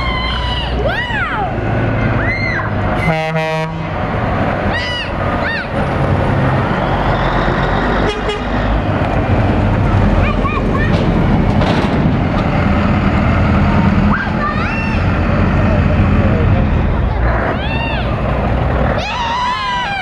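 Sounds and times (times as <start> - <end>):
diesel engine rumble: 0.0 - 20.0
truck air horn blast: 3.0 - 4.0, 8.0 - 8.6.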